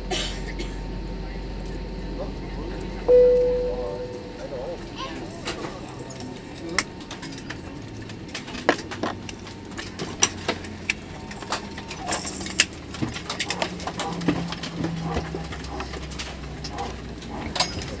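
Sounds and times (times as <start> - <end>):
low engine hum: 0.0 - 18.0
clicks and clatter in cabin: 5.4 - 18.0.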